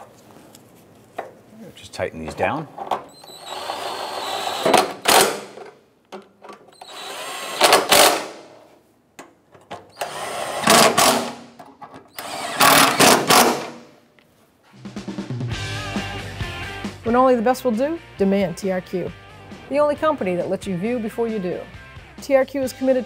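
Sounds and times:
cordless impact wrench bursts: 3.1s - 5.6s, 6.7s - 8.5s, 9.9s - 11.5s, 12.1s - 13.8s.

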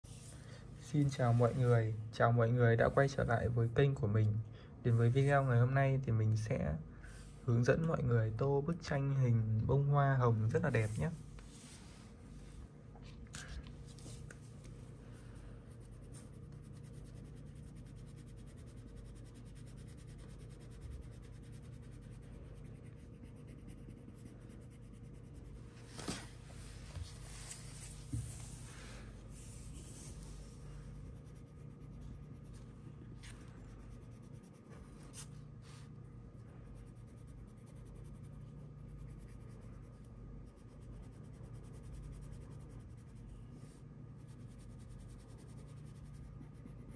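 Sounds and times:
crayon rubbing on paper: 15.7s - 26.2s, 27.1s - 35.3s, 36.7s - 46.9s.

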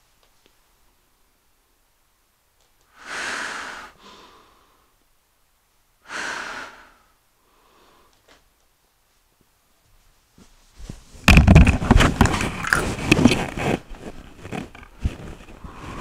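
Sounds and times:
hissing breaths through gas mask: 2.9s - 4.7s.

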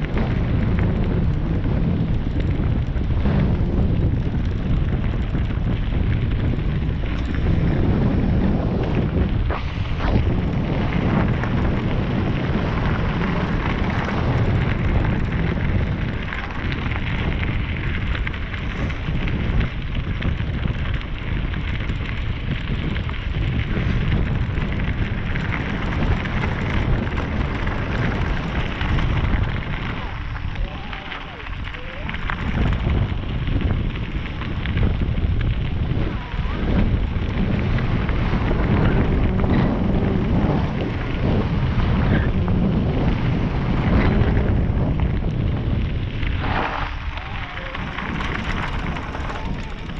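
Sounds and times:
bike tyres rolling over gravel: 0.0s - 49.9s
wind rushing over microphone: 0.0s - 49.9s
bike knocks and rattles: 42.0s - 49.9s.

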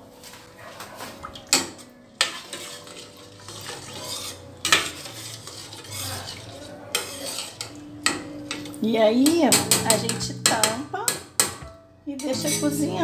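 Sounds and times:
spoon stirring rice in water: 1.0s - 10.5s
spoon clinking against pot: 1.5s - 11.6s
spoon scraping pot: 1.5s - 11.6s.

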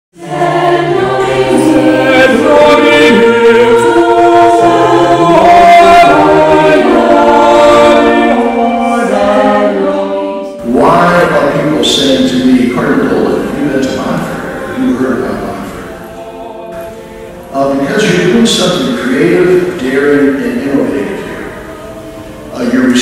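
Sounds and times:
a cappella choir singing: 0.2s - 23.0s.

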